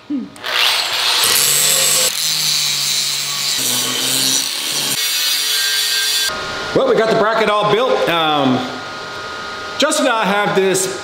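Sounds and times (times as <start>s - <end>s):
grinder motor hum: 0.4s - 5.2s
grinder disc hissing on metal: 0.8s - 6.3s.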